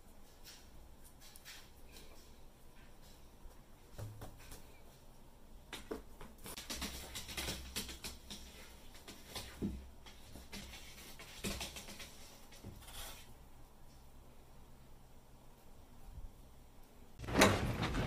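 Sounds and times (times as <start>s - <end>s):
cat claws scratching: 6.4s - 13.3s.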